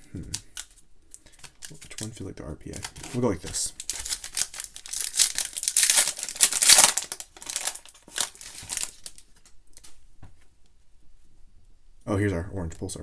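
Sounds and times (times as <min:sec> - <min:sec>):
foil wrapper crinkling and tearing: 0:00.3 - 0:09.9
cards being handled: 0:00.3 - 0:10.0.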